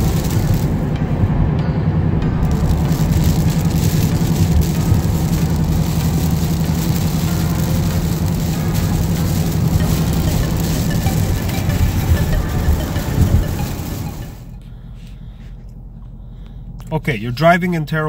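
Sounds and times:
tyres hissing on slush: 0.0s - 0.8s, 2.5s - 14.4s
low engine drone: 0.0s - 17.1s.

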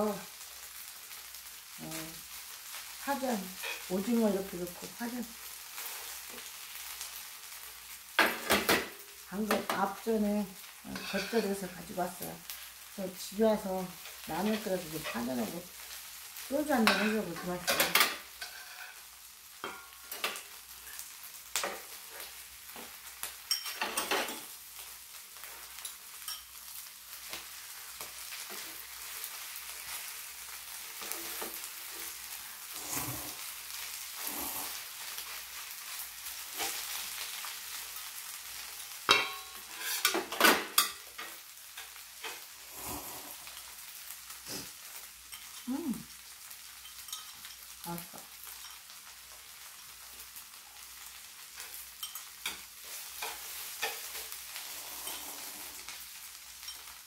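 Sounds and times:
pancake sizzling on a griddle: 0.0s - 57.0s
utensils clicking on griddle: 51.6s - 56.0s.

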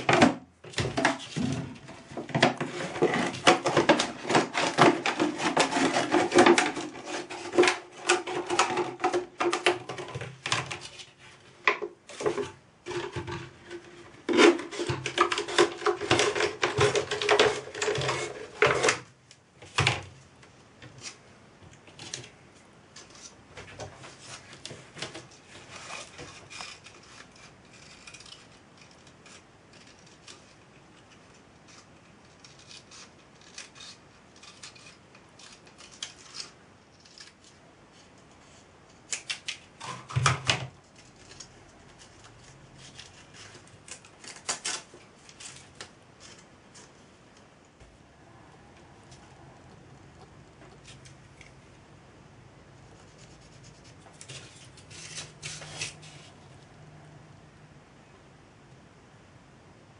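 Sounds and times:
scissors cutting plastic bottle: 2.4s - 10.9s.

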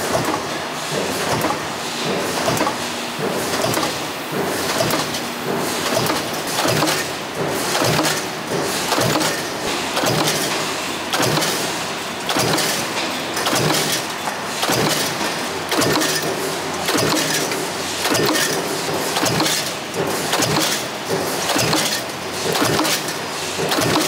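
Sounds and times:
production-line machinery clattering: 0.0s - 24.0s.

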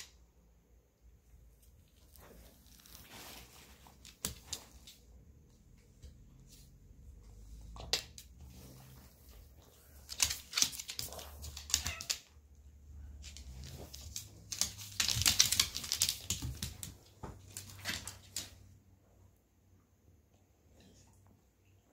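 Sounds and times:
dog claws clicking on wooden floor: 9.6s - 12.3s, 13.2s - 18.7s.

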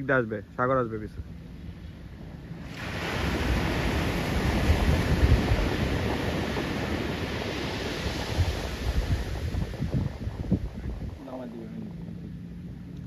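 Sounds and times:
wind buffeting microphone: 0.0s - 13.0s
breaking surf: 2.3s - 12.7s.

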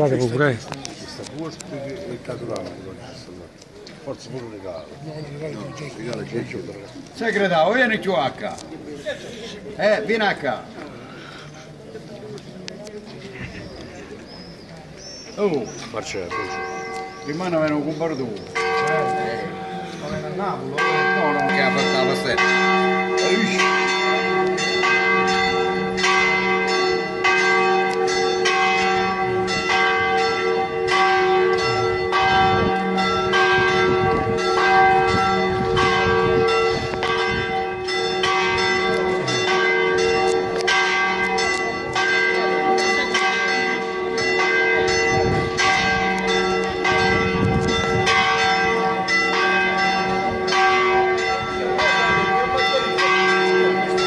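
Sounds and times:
church bells pealing: 13.4s - 54.0s.

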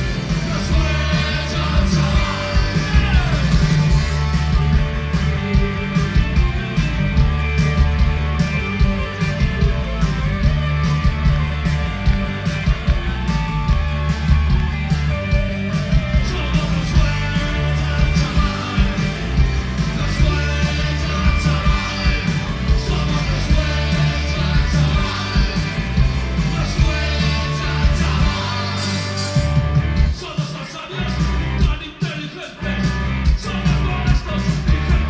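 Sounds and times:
bass guitar: 0.0s - 35.0s
drum kit beat: 0.0s - 35.0s
electric guitars: 0.0s - 35.0s
person singing: 0.3s - 3.7s, 16.2s - 19.2s, 26.4s - 29.2s.

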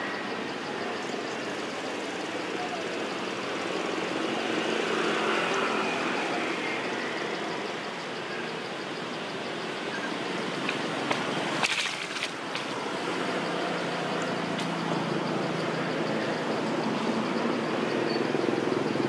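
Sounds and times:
outdoor background noise: 0.0s - 19.0s.

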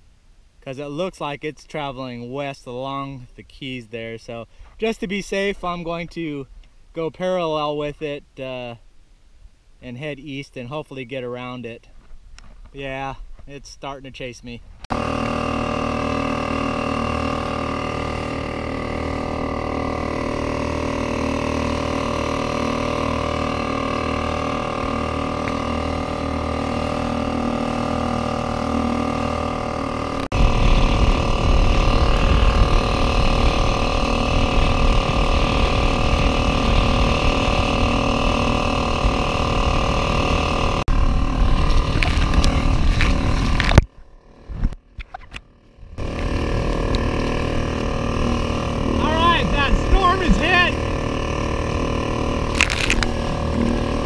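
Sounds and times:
kayak motor running: 14.9s - 54.0s
wind rumble on microphone: 30.3s - 54.0s.

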